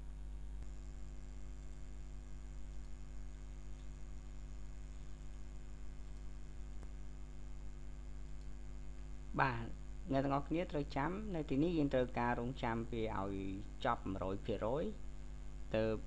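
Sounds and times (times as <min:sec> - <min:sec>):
mains hum: 0:00.0 - 0:16.0
faint click: 0:06.0 - 0:07.0.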